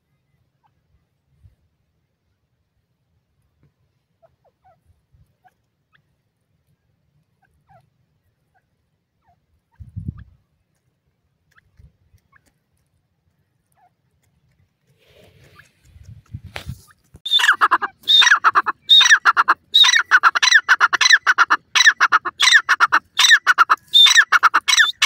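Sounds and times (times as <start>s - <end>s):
bird clucking: 15.1s - 25.0s.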